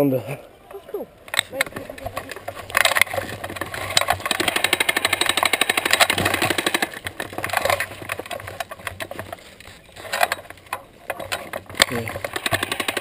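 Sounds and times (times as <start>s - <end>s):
scattered clicks: 1.3s - 13.0s
airsoft gun full-auto burst: 4.2s - 7.0s, 12.3s - 13.0s.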